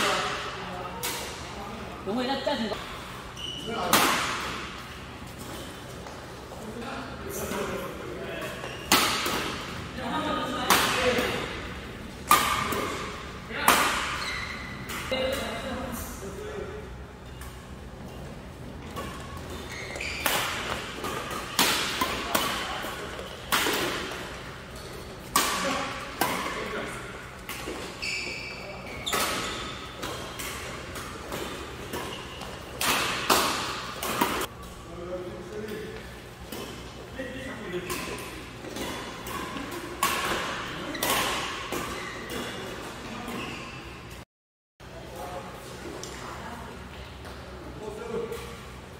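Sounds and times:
badminton racket hitting shuttlecock: 12.2s - 14.2s, 20.2s - 28.0s.

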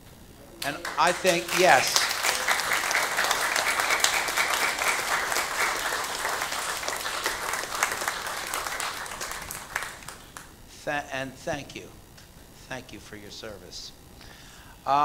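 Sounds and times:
congregation applauding: 0.6s - 10.6s.

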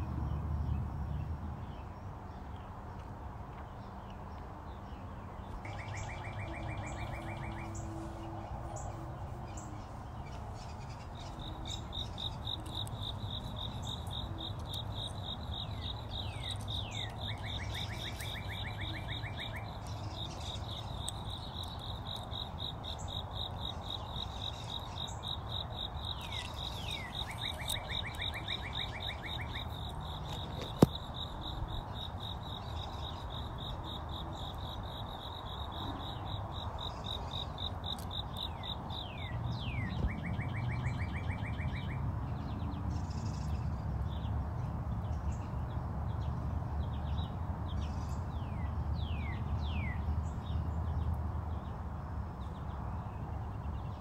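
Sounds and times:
cricket chirping: 5.6s - 42.0s
small bird calling: 8.8s - 40.2s.

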